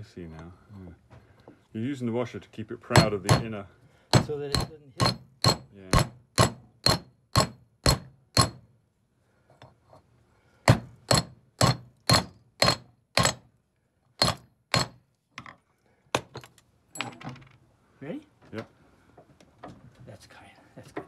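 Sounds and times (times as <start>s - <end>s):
hammer striking steel bar: 4.1s - 8.6s, 10.7s - 13.4s, 14.2s - 15.0s.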